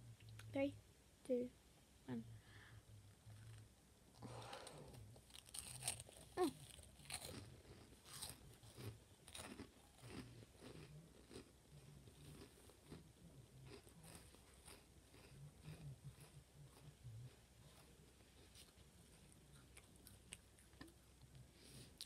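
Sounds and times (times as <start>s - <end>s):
corn snack crunched and chewed: 4.4s - 21.4s.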